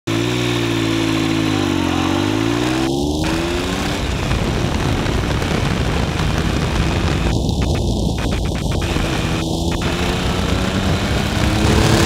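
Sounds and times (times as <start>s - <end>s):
motorcycle engine running: 0.1s - 12.0s
wind rush on microphone: 2.3s - 12.0s.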